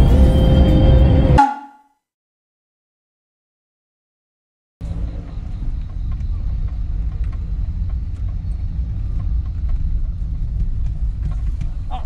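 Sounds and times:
car engine and tyres rumbling: 4.8s - 12.0s.

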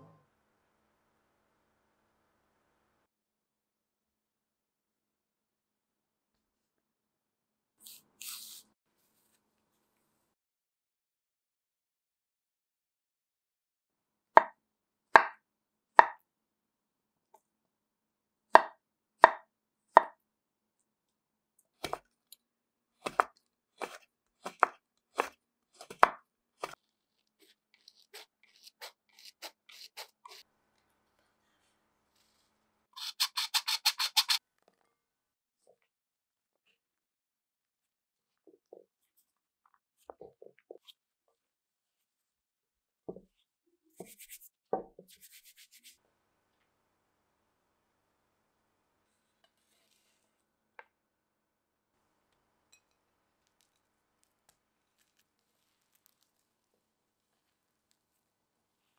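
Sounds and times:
knife chopping on cutting board: 21.8s - 22.1s, 23.0s - 26.8s
fast light scratching strokes: 33.0s - 34.4s.

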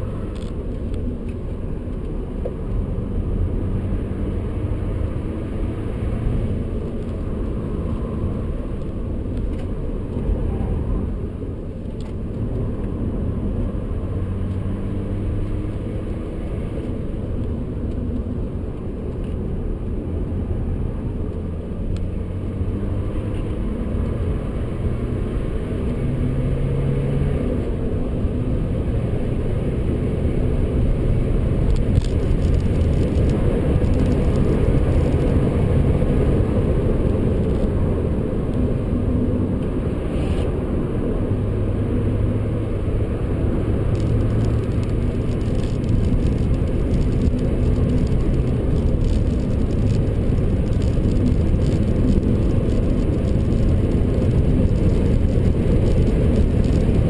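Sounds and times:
road noise: 0.0s - 57.0s
wind noise: 22.1s - 57.0s.

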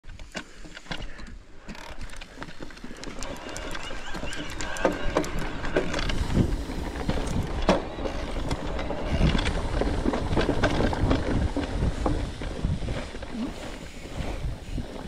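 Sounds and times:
bike rattling over bumps: 0.1s - 14.9s
bike tyres rolling over dirt: 0.2s - 15.0s
wind rumble on microphone: 4.0s - 15.0s.

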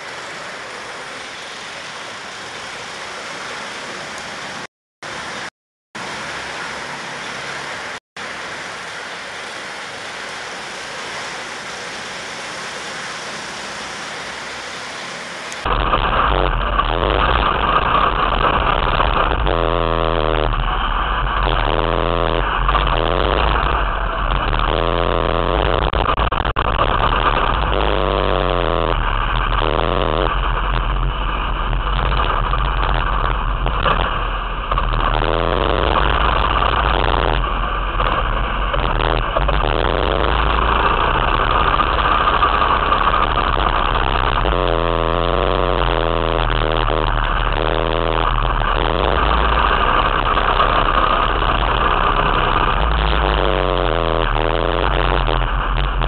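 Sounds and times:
go-kart engine revving: 33.8s - 56.0s.

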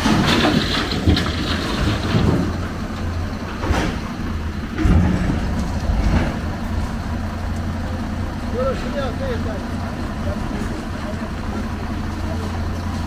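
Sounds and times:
scrap metal clanking in truck bed: 0.0s - 6.9s
diesel engine droning: 0.0s - 13.0s.

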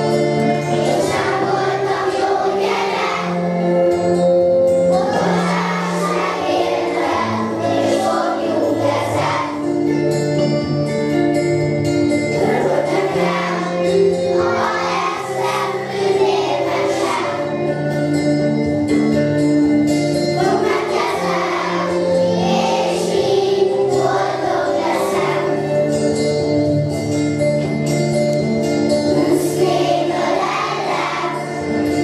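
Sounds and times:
children singing together: 0.0s - 9.9s, 12.3s - 17.9s, 20.3s - 26.2s, 29.1s - 32.0s
musical accompaniment of held notes: 0.0s - 32.0s.

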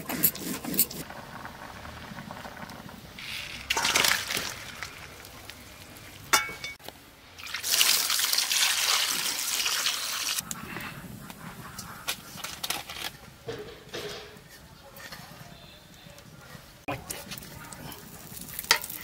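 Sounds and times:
water pouring and trickling: 1.0s - 10.5s
water splash: 3.7s - 6.4s.

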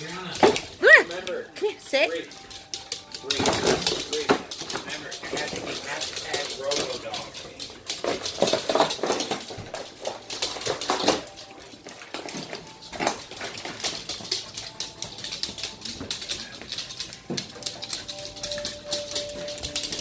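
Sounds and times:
dog claws clicking on hardwood floor: 0.0s - 20.0s.

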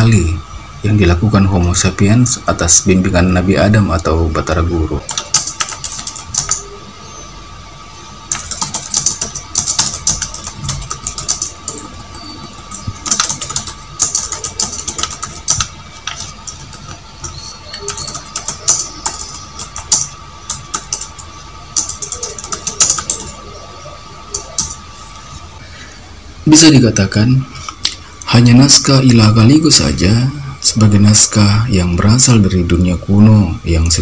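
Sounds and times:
steady high whine: 0.0s - 34.0s
keyboard typing: 5.0s - 6.7s, 8.3s - 23.7s, 24.3s - 24.8s.

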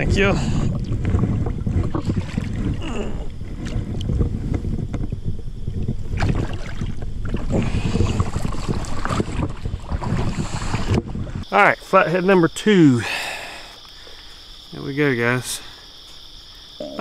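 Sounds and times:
water splashing and sloshing: 0.0s - 12.2s
wind buffeting microphone: 0.0s - 12.6s.

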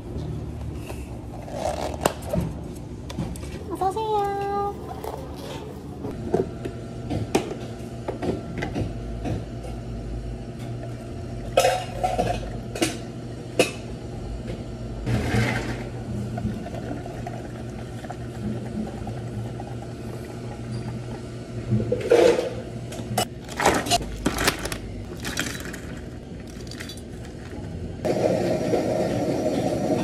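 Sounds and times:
low hum of cafe equipment: 0.0s - 30.0s
plastic cups clattering on steel: 23.5s - 27.6s.

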